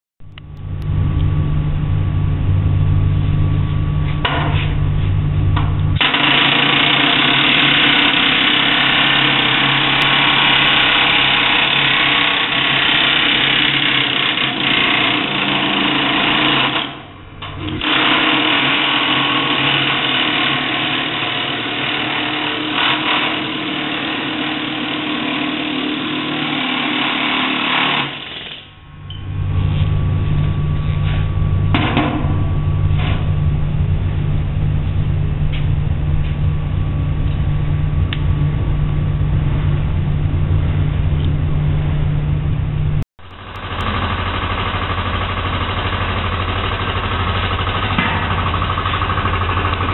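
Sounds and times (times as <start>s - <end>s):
steady low hum: 0.2s - 25.0s, 28.0s - 49.9s
pneumatic air hammer: 6.0s - 28.8s, 43.3s - 49.9s.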